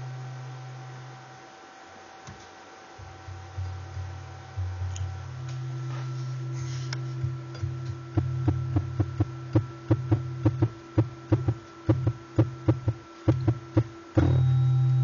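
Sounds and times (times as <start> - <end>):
tuning fork hum: 0.0 - 15.0.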